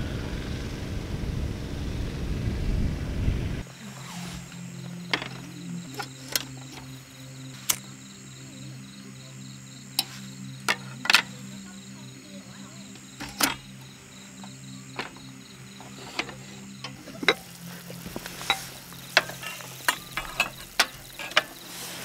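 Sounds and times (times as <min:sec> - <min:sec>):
steady low hum: 0:00.0 - 0:22.0
metal lantern clicks and clinks: 0:05.1 - 0:07.0, 0:13.2 - 0:13.8, 0:15.8 - 0:21.7.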